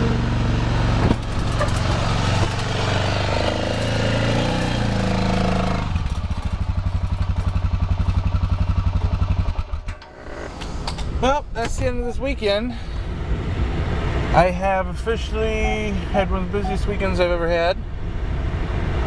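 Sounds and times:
quad bike engine revving: 0.0 - 10.5.

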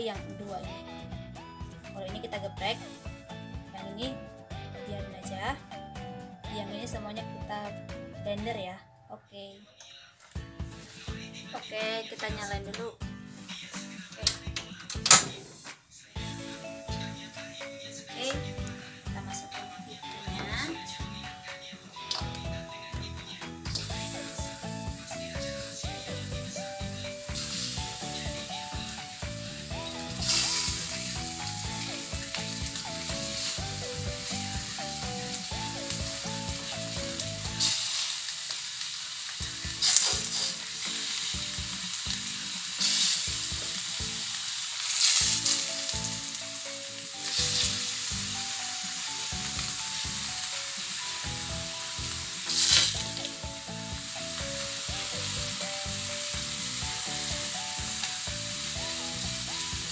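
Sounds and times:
faint background music: 0.0 - 59.9
fish sizzling in a wok: 2.6 - 3.4, 23.6 - 59.9.

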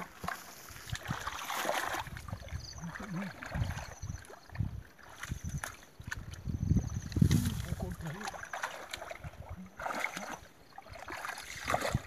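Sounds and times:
hands splashing in muddy water: 0.0 - 6.5, 7.1 - 12.0.

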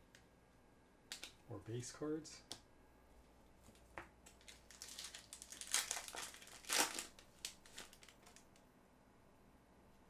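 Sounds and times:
foil pack crinkling and tearing: 4.3 - 8.5.

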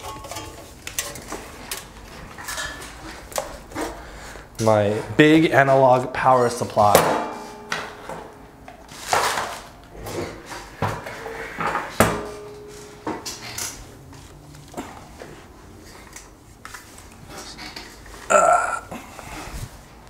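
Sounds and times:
equipment clattering on a workbench: 6.9 - 14.2.

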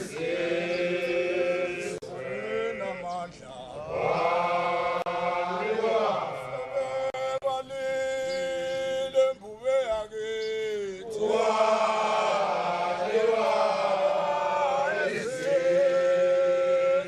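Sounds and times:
group of voices chanting: 0.0 - 3.1, 3.8 - 7.2, 11.0 - 17.0.

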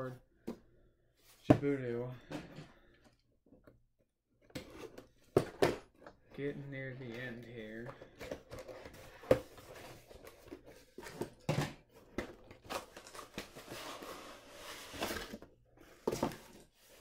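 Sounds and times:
cardboard rustling and scraping: 4.6 - 17.0.

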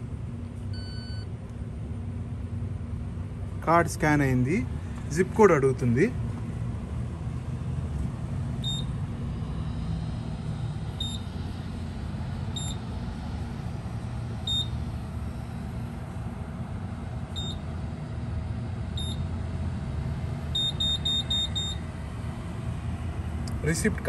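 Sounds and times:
steady low hum: 0.0 - 24.0
keypad beeps: 0.8 - 1.2, 8.6 - 8.9, 11.0 - 11.3, 12.6 - 12.8, 14.4 - 14.7, 17.4 - 17.6, 19.0 - 19.2, 20.6 - 21.8.

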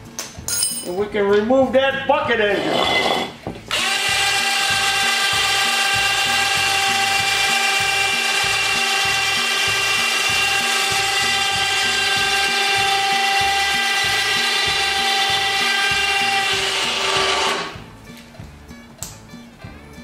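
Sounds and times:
lift motor whining: 2.6 - 17.8.

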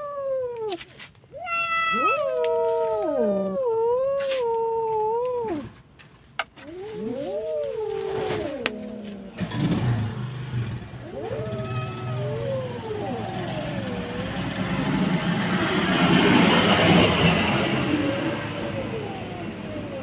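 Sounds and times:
cat yowling: 0.0 - 5.7, 6.6 - 9.5, 11.0 - 14.1
vehicle engine humming: 5.1 - 20.0.

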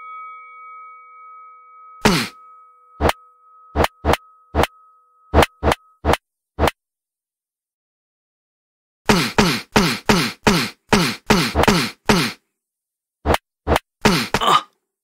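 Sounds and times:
cartoon punch hits: 2.0 - 2.4, 5.4 - 6.7, 9.1 - 12.4, 13.3 - 14.5.

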